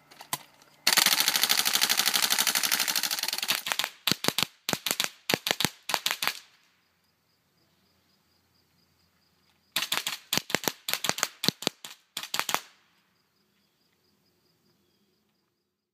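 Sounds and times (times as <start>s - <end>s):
airsoft rifle shots: 0.3s - 6.5s, 9.8s - 12.8s.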